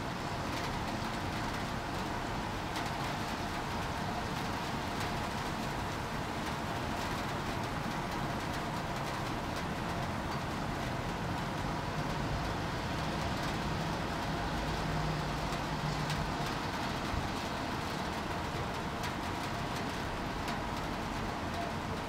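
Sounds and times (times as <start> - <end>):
light rain: 0.0 - 22.0
raindrop ticks: 0.5 - 22.0.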